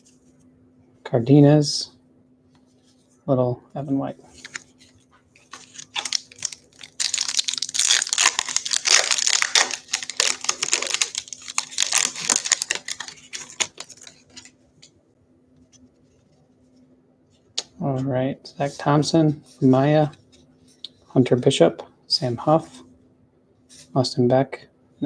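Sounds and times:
foil wrapper crinkling: 5.4 - 14.9
foil tearing: 5.5 - 14.5.

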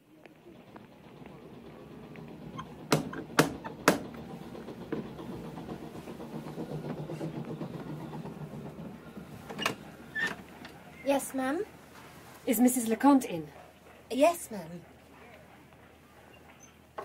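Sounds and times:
background hubbub: 0.0 - 17.0
knocking on a door: 2.9 - 4.2.

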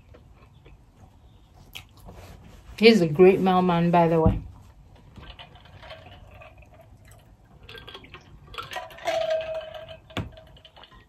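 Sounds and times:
liquid sloshing and gulping: 5.2 - 11.0.

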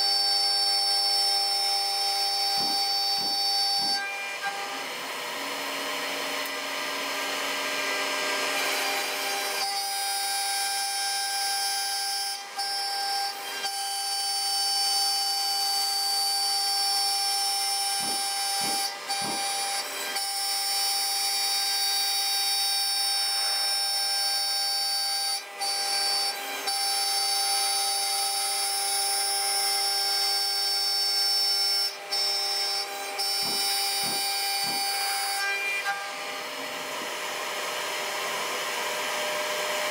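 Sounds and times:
cutter milling wood: 0.0 - 39.9
spindle whining: 2.0 - 5.4.

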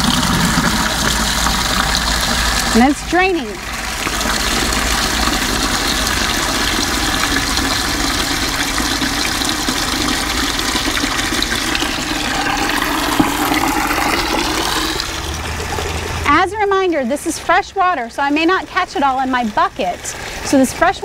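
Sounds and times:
water pouring into plastic bucket: 0.0 - 16.3.

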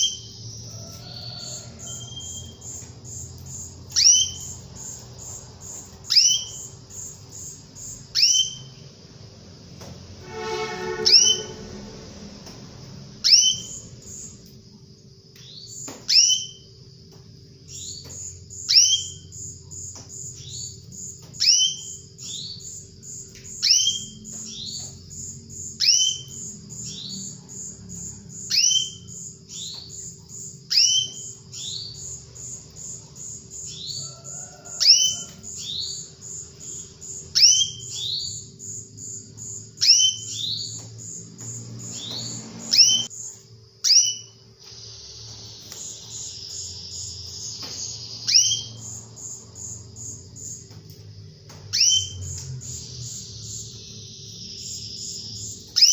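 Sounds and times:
very high bird pips: 10.2 - 11.7
canary downward call: 10.2 - 12.0.

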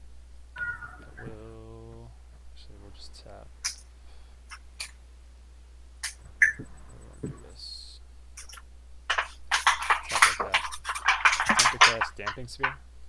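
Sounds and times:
playing cards clicking and rustling: 8.4 - 12.8.

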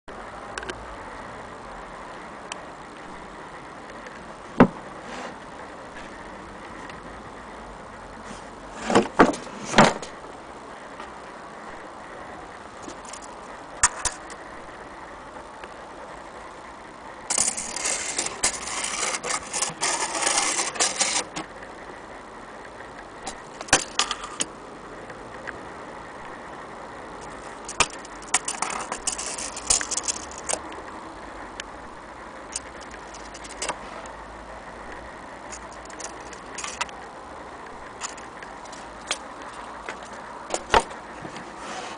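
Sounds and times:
steady background hiss: 0.1 - 41.9
tape measure blade scraping: 17.3 - 21.5, 27.2 - 30.6, 35.5 - 36.9.

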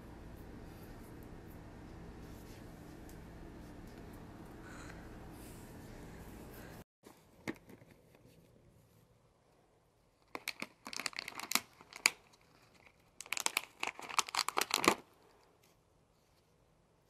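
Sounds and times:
plastic pouch crinkling: 10.2 - 15.2.

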